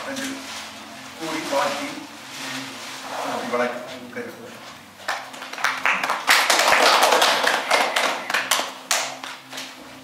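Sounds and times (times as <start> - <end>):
audience applauding: 5.1 - 9.4.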